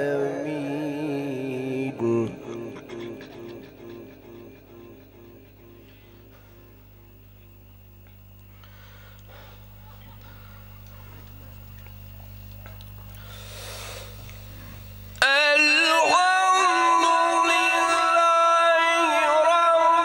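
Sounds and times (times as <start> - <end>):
man chanting through loudspeaker: 0.0 - 5.9, 15.2 - 20.0
electrical hum: 0.0 - 20.0
soft hiss: 5.8 - 15.3.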